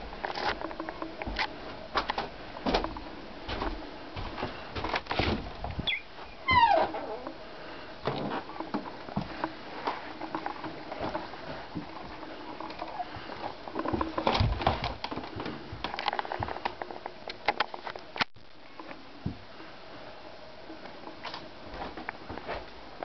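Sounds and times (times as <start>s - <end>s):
footsteps on wooden floorboards: 1.2s - 5.9s.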